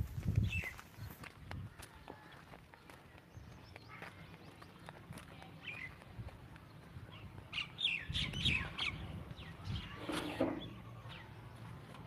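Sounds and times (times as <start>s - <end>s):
bird chirping: 5.6s - 11.7s.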